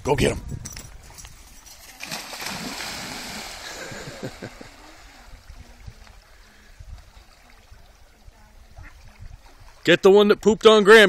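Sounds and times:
ducks taking off from water: 0:01.7 - 0:09.9
dog swimming and splashing: 0:01.8 - 0:03.7
dog splashing into water: 0:01.9 - 0:05.2.

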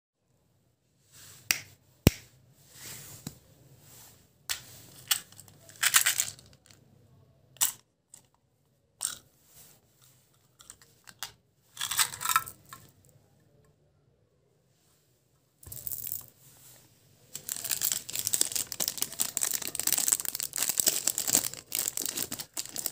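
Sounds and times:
candy rattling in plastic box: 0:05.0 - 0:06.8, 0:11.8 - 0:12.9, 0:15.7 - 0:16.3, 0:17.3 - 0:22.9.

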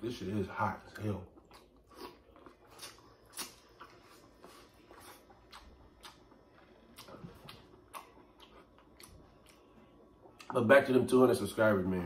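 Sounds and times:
mouth chewing clicks and smacks: 0:01.4 - 0:10.6.

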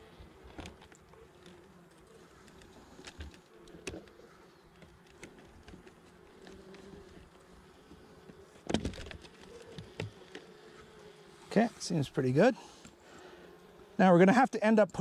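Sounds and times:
bees buzzing: 0:00.0 - 0:15.0.

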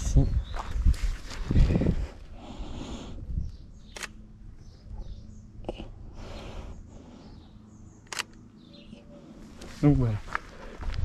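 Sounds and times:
faint birdsong: 0:00.0 - 0:11.0
camera shutter clicking: 0:03.9 - 0:04.2, 0:08.1 - 0:08.4.

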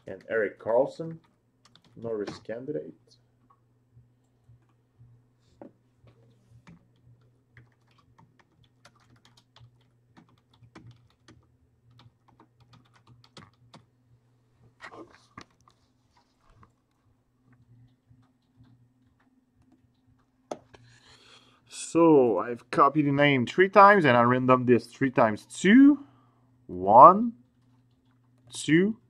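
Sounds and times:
low steady hum: 0:00.0 - 0:29.0
typing on computer keyboard: 0:01.2 - 0:02.3, 0:07.6 - 0:13.9.

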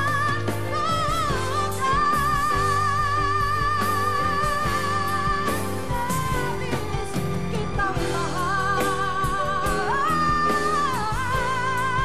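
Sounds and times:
band playing: 0:00.0 - 0:12.0
woman singing a ballad: 0:00.0 - 0:12.0.

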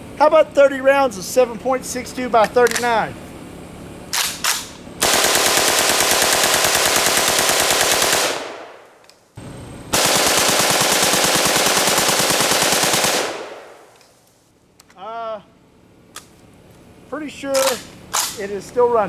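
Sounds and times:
automatic rifle bursts: 0:04.1 - 0:09.1, 0:09.9 - 0:14.2, 0:17.5 - 0:18.4.

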